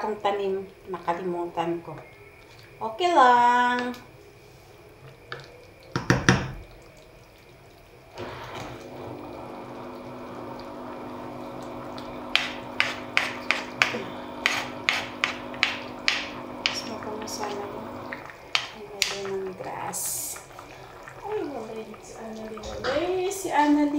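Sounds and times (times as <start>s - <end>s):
spoon knocking against pot: 5.9s - 6.6s, 12.4s - 16.9s
steady hum: 7.3s - 23.9s
wooden spoon stirring soup: 12.0s - 23.9s.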